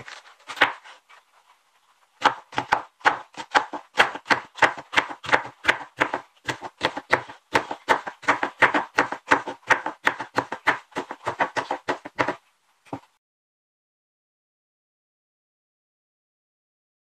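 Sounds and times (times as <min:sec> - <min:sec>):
knife chopping on wooden board: 0:00.0 - 0:00.9, 0:02.2 - 0:13.0.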